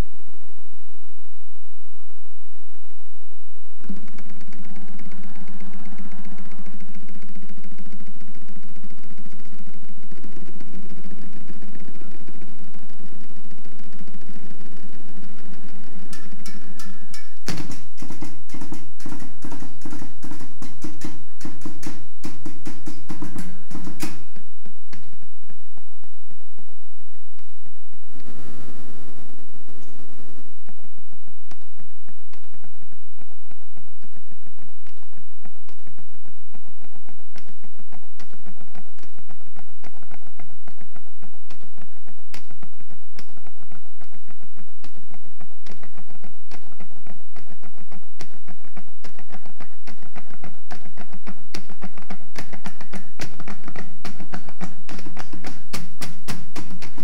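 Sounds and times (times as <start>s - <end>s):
drumsticks tapping on found objects: 16.1s - 25.6s, 49.0s - 57.0s.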